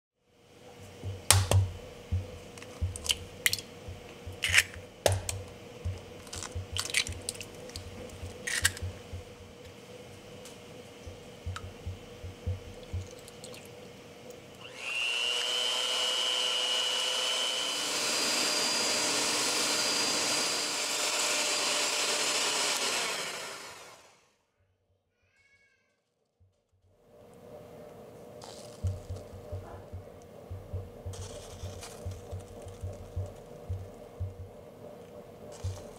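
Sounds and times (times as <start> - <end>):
eggs cracking: 2.5 - 9.3, 11.5 - 14.0, 30.8 - 33.9
kitchen appliance motor running: 14.5 - 24.2, 31.1 - 34.4.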